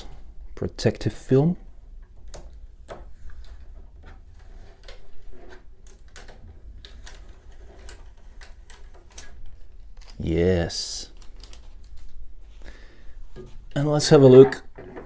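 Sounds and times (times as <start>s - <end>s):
plastic film peeling and crackling: 4.2s - 12.4s.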